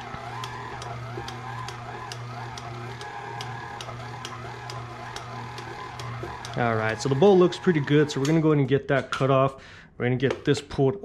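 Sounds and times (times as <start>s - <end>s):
stand mixer motor humming: 0.0s - 8.6s.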